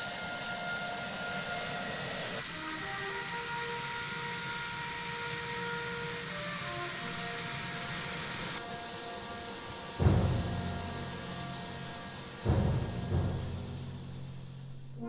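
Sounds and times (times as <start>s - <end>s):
jet engine whine: 0.0s - 15.0s
continuous hiss: 6.7s - 15.0s
steady high tones: 8.6s - 15.0s.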